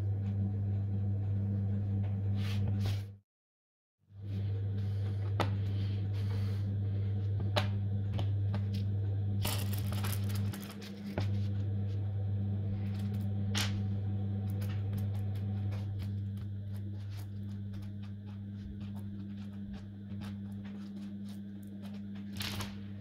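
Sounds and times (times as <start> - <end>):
steady low hum: 0.0 - 3.2, 4.1 - 23.0
steel balls clicking and rattling: 9.4 - 10.8.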